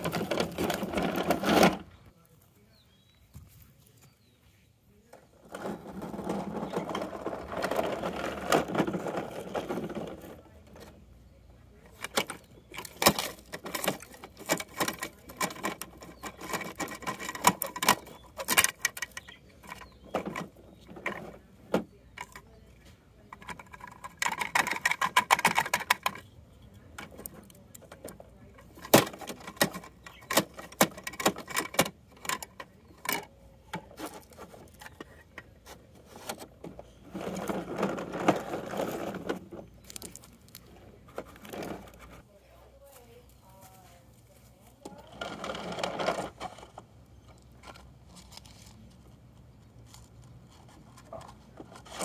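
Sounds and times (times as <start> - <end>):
toy plastic clicking and clattering: 11.9 - 21.4, 23.4 - 26.3, 26.9 - 35.5.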